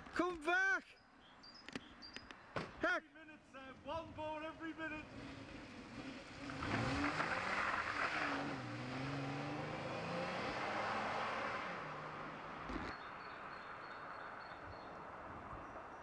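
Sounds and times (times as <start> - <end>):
car engine accelerating: 5.0 - 12.9.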